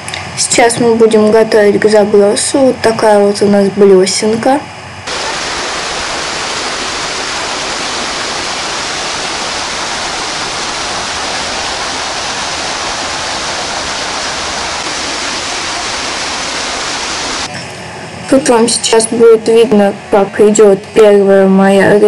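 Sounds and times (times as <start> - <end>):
water jetting into a pool: 5.1 - 17.5.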